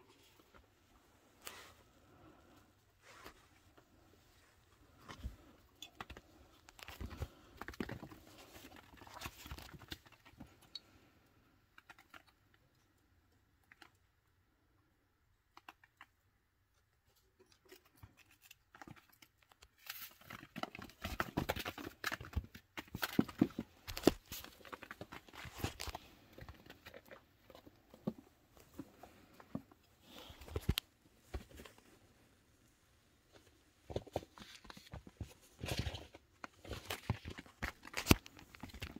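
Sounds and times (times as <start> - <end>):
chinchillas scratching and rustling: 1.4 - 11.0
clicking among wooden chew toys: 4.9 - 14.4.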